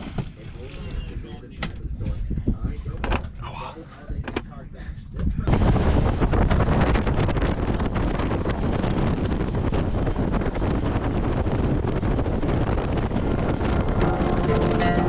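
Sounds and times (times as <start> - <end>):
wind rushing over microphone: 0.8 - 3.4, 4.5 - 15.0
water noise: 5.5 - 15.0
boat engine: 12.3 - 15.0.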